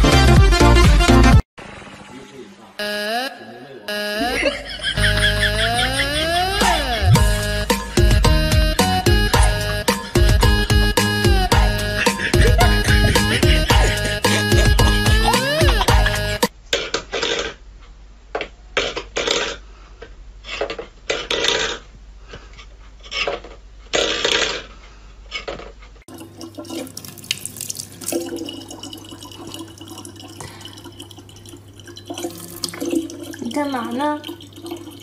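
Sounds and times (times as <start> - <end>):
tap water running into plastic bottle: 26.1 - 35.0.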